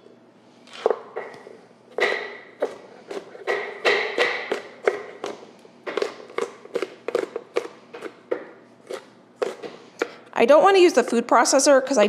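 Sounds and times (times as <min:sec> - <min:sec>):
knife chopping on cutting board: 0:01.9 - 0:10.2.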